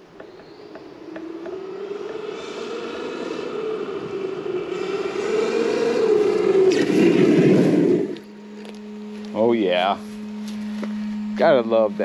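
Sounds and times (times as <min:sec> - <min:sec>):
electric motor whine: 0:00.0 - 0:12.0
tyres on gravel: 0:04.7 - 0:11.9.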